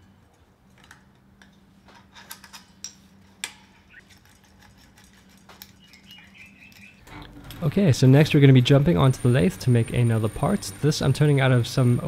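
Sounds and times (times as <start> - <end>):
faint hum: 3.1 - 12.0.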